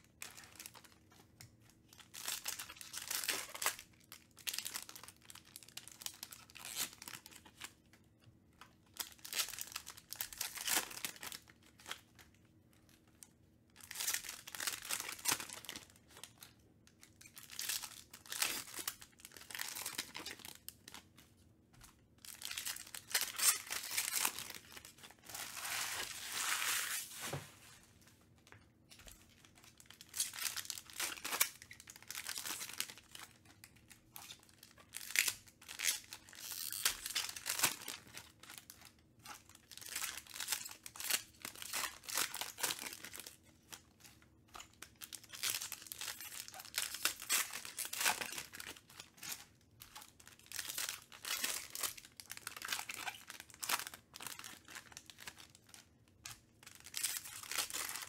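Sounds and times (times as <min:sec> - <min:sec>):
foil wrappers tearing and crinkling: 0:22.2 - 0:27.4, 0:29.4 - 0:33.3, 0:34.2 - 0:38.8, 0:39.4 - 0:43.8, 0:44.6 - 0:55.8, 0:56.6 - 0:58.0.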